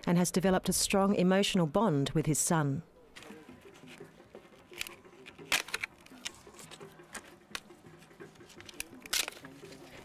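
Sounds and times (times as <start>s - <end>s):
faint background voices: 2.8s - 10.0s.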